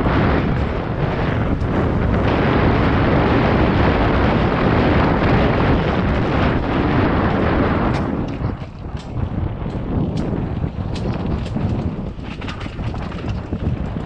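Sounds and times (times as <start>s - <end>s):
bike rattle: 0.0s - 14.0s
wind buffeting microphone: 0.0s - 14.0s.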